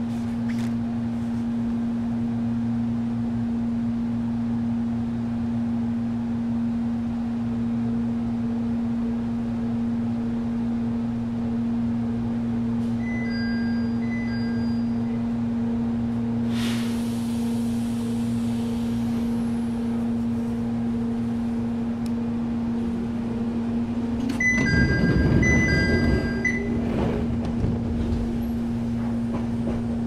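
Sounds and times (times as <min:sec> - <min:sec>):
train equipment humming: 0:00.0 - 0:30.0
train pulling away rumble: 0:00.0 - 0:30.0
air hiss: 0:16.5 - 0:19.3.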